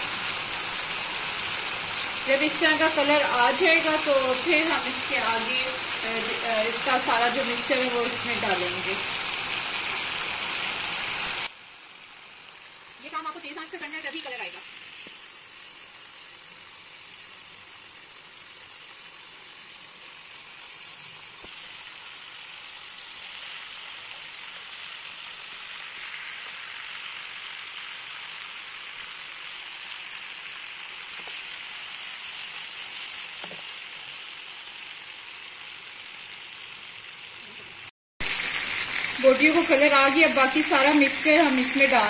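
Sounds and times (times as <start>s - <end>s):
chicken sizzling in hot oil: 0.0s - 42.0s.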